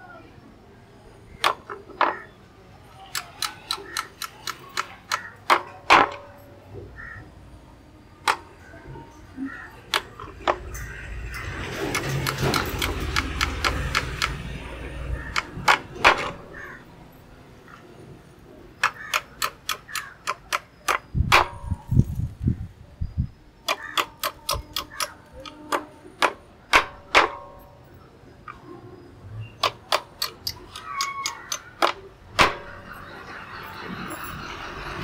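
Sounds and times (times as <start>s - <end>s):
metal rat trap taps and clicks: 15.3s - 16.5s, 18.8s - 22.1s, 23.6s - 27.6s, 29.6s - 32.9s.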